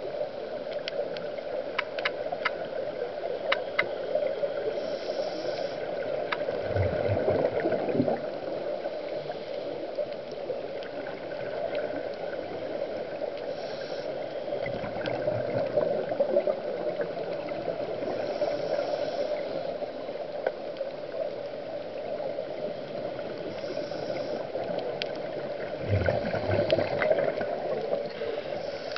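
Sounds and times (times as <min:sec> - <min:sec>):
regulator inhale hiss: 0:04.5 - 0:06.2, 0:13.4 - 0:14.7, 0:17.9 - 0:20.0, 0:23.3 - 0:24.8, 0:28.1 - 0:28.9
gurgle of exhaled bubbles: 0:06.2 - 0:08.6, 0:14.6 - 0:18.1, 0:25.3 - 0:28.1.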